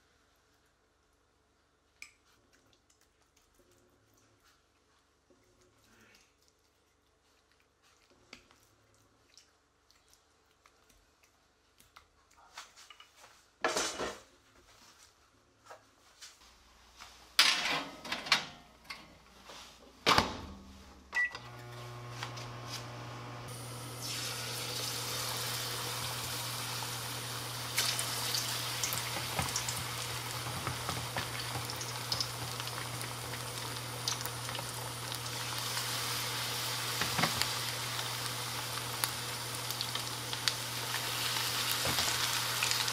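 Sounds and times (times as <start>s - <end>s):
tray and utensils clattering: 13.6s - 14.3s, 17.4s - 19.1s
electric oven humming: 20.1s - 42.9s.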